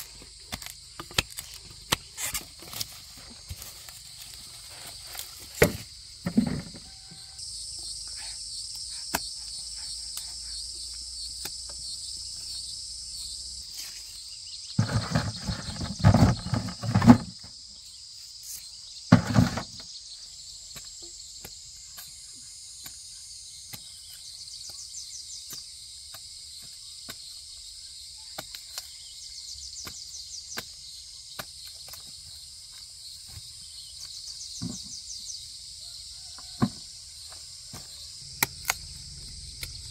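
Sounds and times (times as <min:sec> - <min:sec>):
insects chirring: 0:00.0 - 0:39.9
knocks and handling noise: 0:05.1 - 0:07.0, 0:14.8 - 0:17.5, 0:19.1 - 0:19.9, 0:34.6 - 0:35.0.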